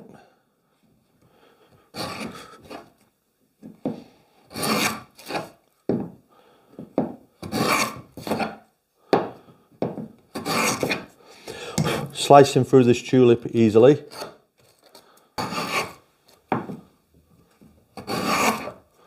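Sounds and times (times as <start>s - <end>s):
plane blade shaving wood: 2.0s - 2.9s, 4.5s - 5.5s, 7.5s - 8.6s, 10.4s - 11.1s, 15.4s - 16.0s, 18.0s - 18.8s.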